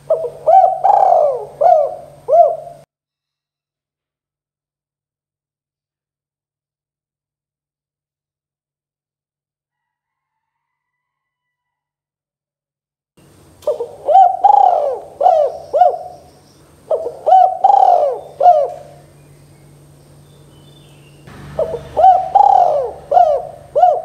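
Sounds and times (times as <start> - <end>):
dove cooing: 0.0 - 2.9, 13.6 - 19.8, 21.4 - 24.0.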